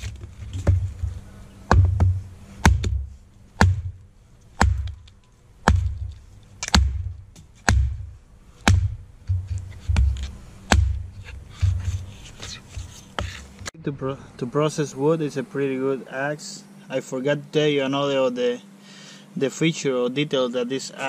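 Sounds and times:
hatchet chopping wood: 0.0s - 4.0s, 4.6s - 13.7s.

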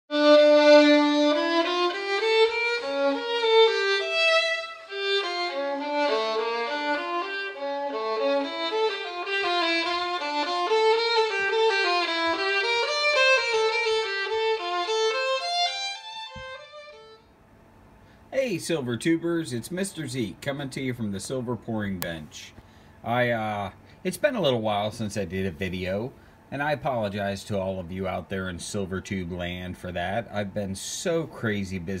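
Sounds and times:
violin playing quick melody: 0.1s - 17.2s.

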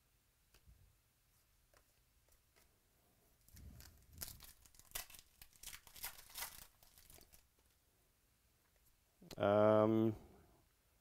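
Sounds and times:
wrapper tearing and crinkling: 3.5s - 7.5s.

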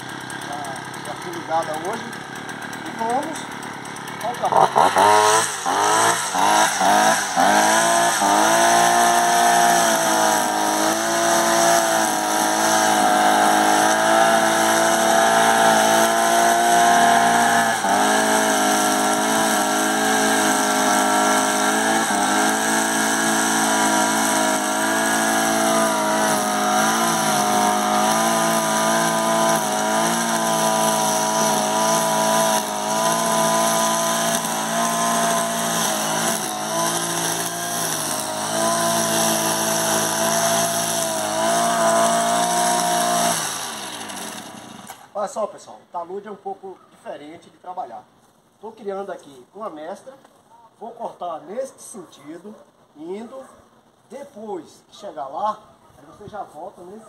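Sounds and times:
brush cutter engine at high revs: 0.0s - 45.1s
nylon line cutting grass: 0.0s - 45.1s.

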